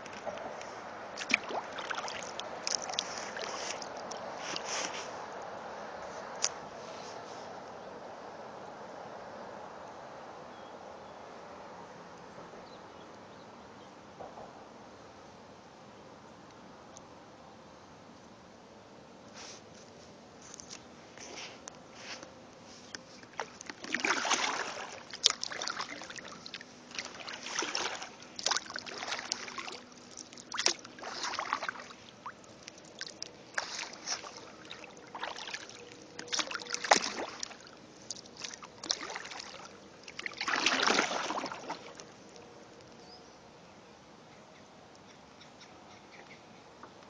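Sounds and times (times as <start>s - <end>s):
paddle splashing through water: 0.0s - 5.1s, 23.1s - 42.4s.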